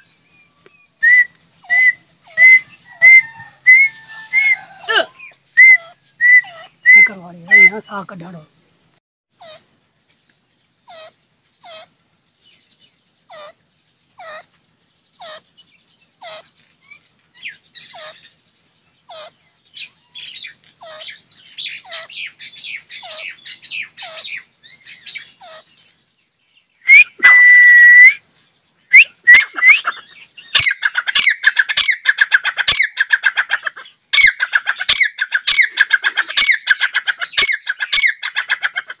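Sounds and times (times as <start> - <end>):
francolin calling: 0.0 - 8.1, 28.9 - 33.6.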